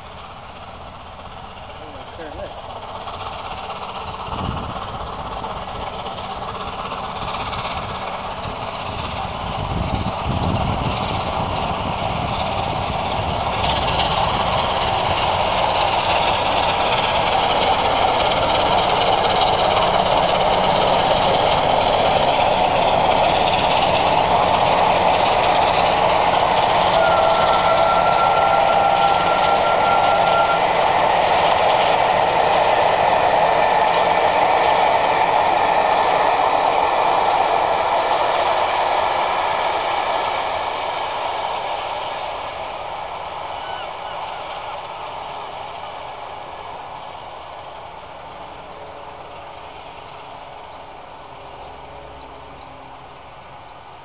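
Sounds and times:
steam train passing: 0:00.0 - 0:54.0
thin steady high tone: 0:26.9 - 0:30.9.

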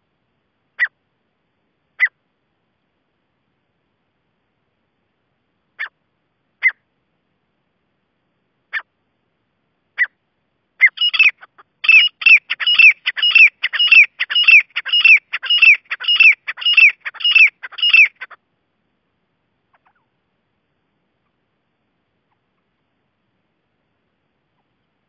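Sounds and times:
bird calling harshly: 0:00.8 - 0:01.0, 0:06.6 - 0:06.8, 0:10.8 - 0:18.4, 0:19.7 - 0:20.1.

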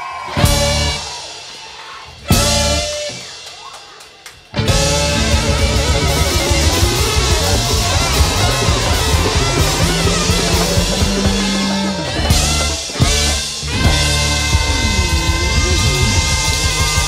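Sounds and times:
live band with saxophones: 0:00.2 - 0:17.0
loud band hit ringing: 0:04.6 - 0:17.0.

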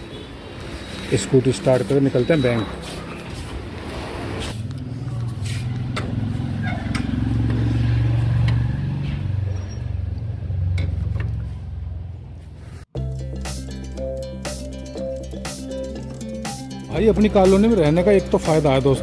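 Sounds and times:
background music: 0:13.0 - 0:19.0.

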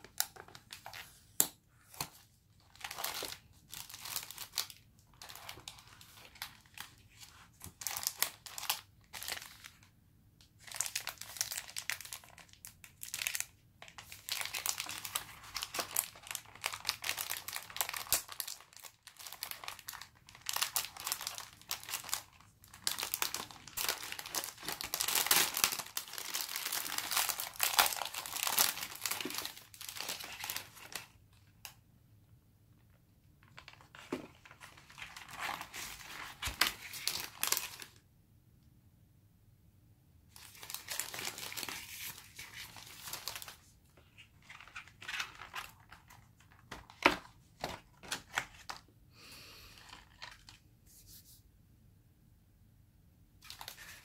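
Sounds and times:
plastic wrapper crinkling: 0:00.0 - 0:09.9, 0:10.6 - 0:31.8, 0:33.4 - 0:38.0, 0:40.3 - 0:48.9, 0:49.8 - 0:50.6, 0:53.4 - 0:54.0.

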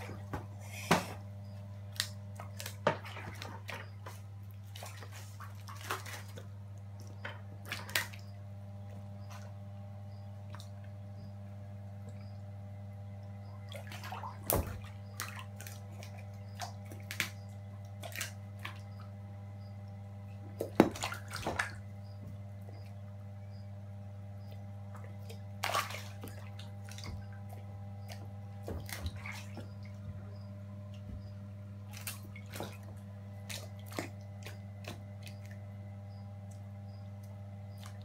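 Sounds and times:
steady low hum: 0:00.0 - 0:38.0
water splashing: 0:01.9 - 0:08.3, 0:13.5 - 0:19.1, 0:20.5 - 0:22.9, 0:24.4 - 0:30.5, 0:31.1 - 0:35.8.

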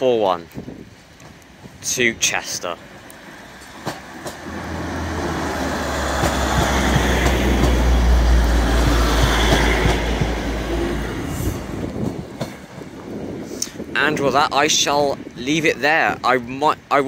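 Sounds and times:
wheel and rail noise: 0:00.0 - 0:15.7
diesel train engine rumble: 0:00.8 - 0:14.0.

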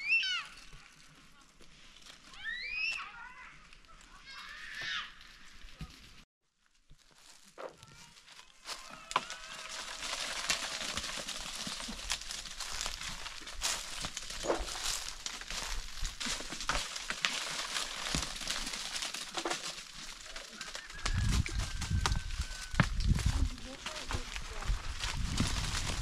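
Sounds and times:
dry leaves rustling: 0:00.0 - 0:26.0
acorns clicking: 0:08.6 - 0:21.2.

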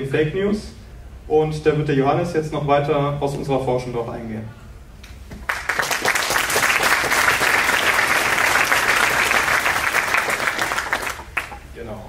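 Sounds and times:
audience applauding: 0:05.4 - 0:11.6.

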